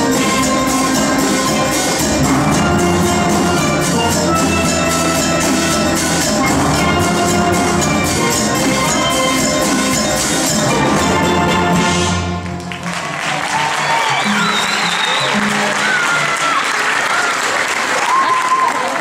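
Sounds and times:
steel band playing: 0:00.0 - 0:16.8
applause: 0:12.4 - 0:19.0.

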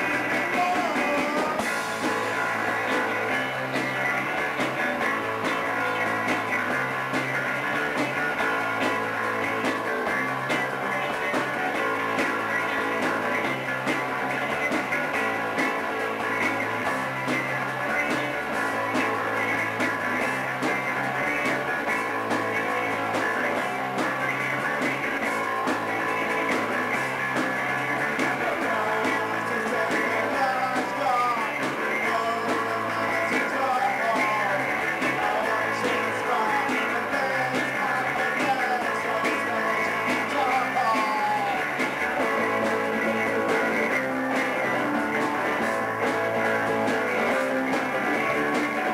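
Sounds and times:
man singing: 0:00.0 - 0:01.8, 0:28.3 - 0:41.9
drum kit: 0:00.0 - 0:48.9
electric bass: 0:00.0 - 0:48.9
electric guitars: 0:00.0 - 0:48.9.

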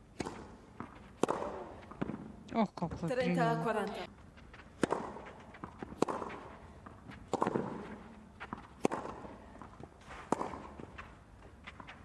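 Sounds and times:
racket striking ball: 0:00.0 - 0:02.4, 0:04.7 - 0:12.0
ball bouncing: 0:00.2 - 0:03.2, 0:04.6 - 0:12.0.

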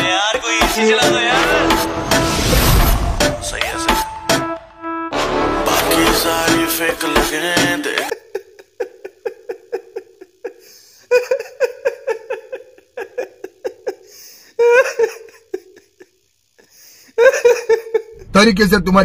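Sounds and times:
man laughing: 0:07.8 - 0:18.3.

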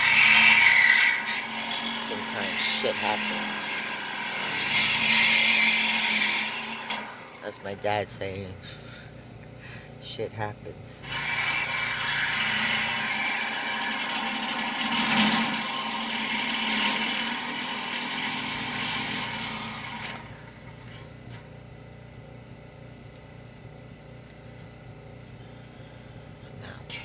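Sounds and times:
power saw cutting steel: 0:00.0 - 0:07.6, 0:11.0 - 0:21.1.

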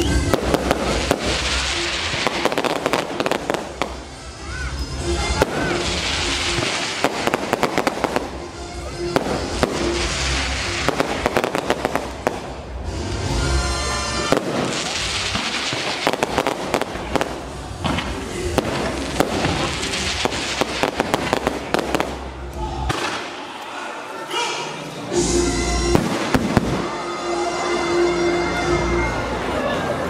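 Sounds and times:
fireworks cracking and popping: 0:00.0 - 0:04.2, 0:05.2 - 0:13.4, 0:14.2 - 0:23.4, 0:25.9 - 0:27.0.

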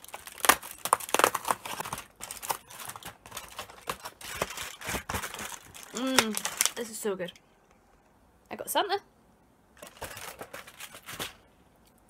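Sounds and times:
packaging crinkling and rustling: 0:00.0 - 0:07.0, 0:09.8 - 0:11.5
crackles and clicks: 0:00.0 - 0:08.2.

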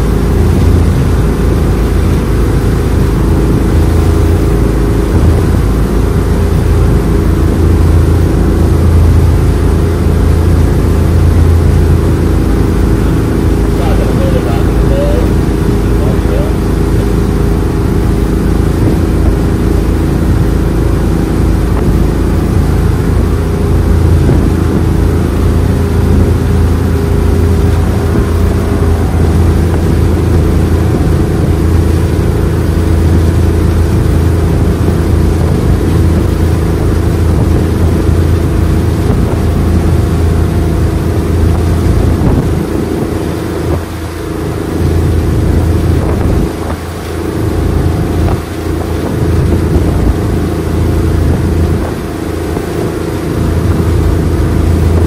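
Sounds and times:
power boat engine drone: 0:00.0 - 0:55.0.

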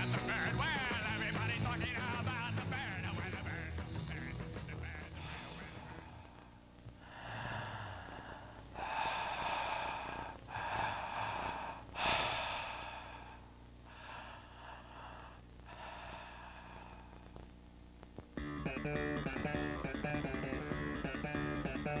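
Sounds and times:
person breathing heavily: 0:05.0 - 0:17.4.

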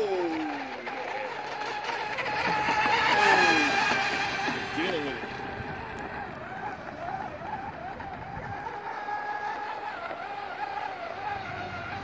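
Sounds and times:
electric boat motor whining: 0:00.0 - 0:12.0.

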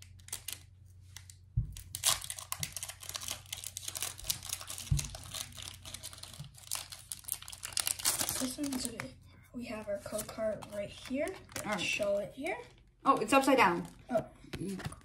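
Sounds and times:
foil wrapper crinkling and tearing: 0:00.0 - 0:09.1, 0:09.8 - 0:15.0
dull thumps: 0:01.5 - 0:01.9.

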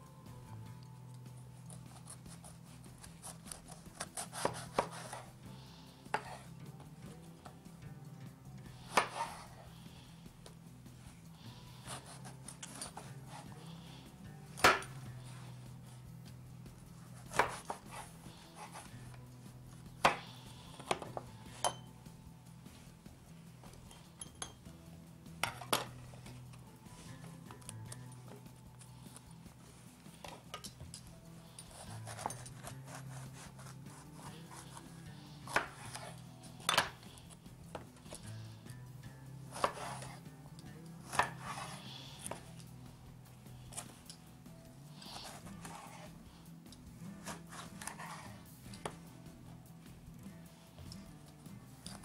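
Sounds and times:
knife cutting on wooden board: 0:01.7 - 0:05.4, 0:06.1 - 0:06.5, 0:08.9 - 0:09.7, 0:11.8 - 0:13.6, 0:14.6 - 0:15.0, 0:17.1 - 0:19.1, 0:19.9 - 0:21.8, 0:31.6 - 0:38.2, 0:39.5 - 0:40.2, 0:41.0 - 0:42.6, 0:45.0 - 0:46.1, 0:47.2 - 0:49.0.

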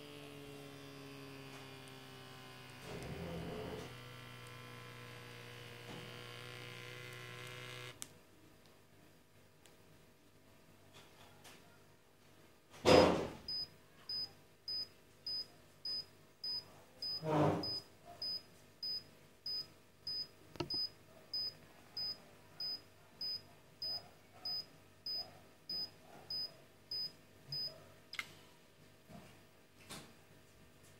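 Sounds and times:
blood pressure monitor beeping: 0:13.5 - 0:27.7.

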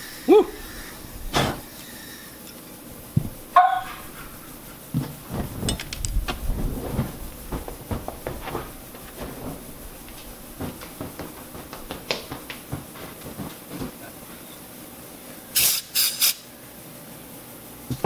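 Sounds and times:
short loud hissing bursts: 0:00.0 - 0:02.4, 0:15.4 - 0:16.6
fire crackling: 0:01.0 - 0:15.5.

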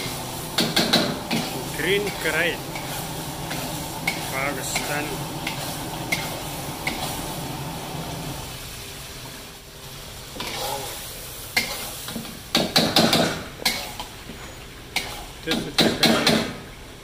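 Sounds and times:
chicken sizzling in oil: 0:00.0 - 0:14.2, 0:14.8 - 0:15.8
metal spatula scraping and clinking: 0:11.6 - 0:11.9.

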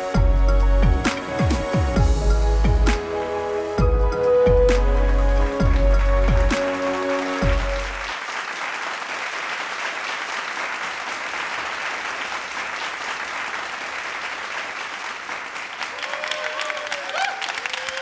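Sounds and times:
electronic music with deep bass: 0:00.0 - 0:08.1
audience applauding: 0:04.7 - 0:18.0.

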